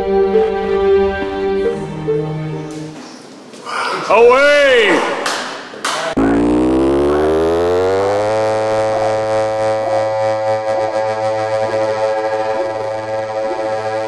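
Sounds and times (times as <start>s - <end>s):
buzzy synth tone sweeping up: 6.2s - 14.0s.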